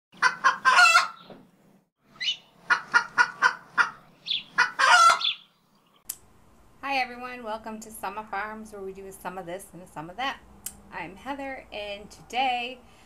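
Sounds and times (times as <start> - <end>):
chicken long drawn-out call: 0.2 - 1.2, 4.6 - 5.4
chicken clucking: 0.2 - 1.3, 2.6 - 5.4.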